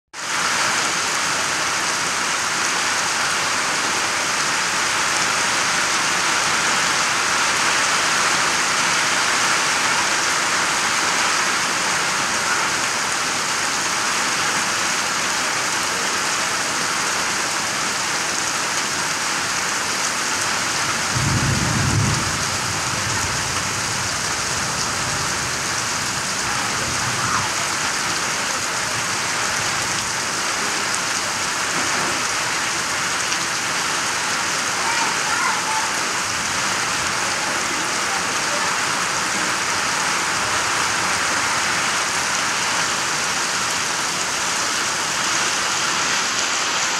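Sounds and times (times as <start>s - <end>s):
heavy rain on grass: 0.1s - 46.9s
low rumble of thunder: 21.1s - 27.5s.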